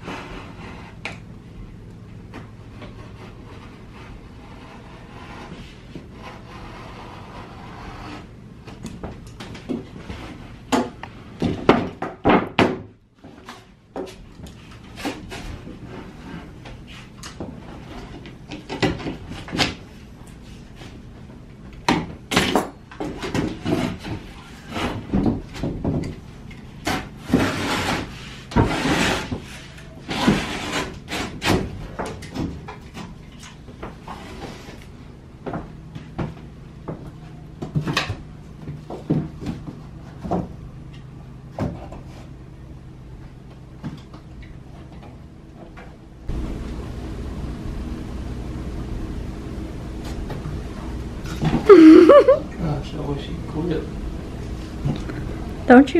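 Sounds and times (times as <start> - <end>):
drywall scraping: 0.0 - 1.3, 2.2 - 12.4, 13.2 - 21.4, 22.0 - 41.0
knocks and taps of drywall: 10.7 - 12.9.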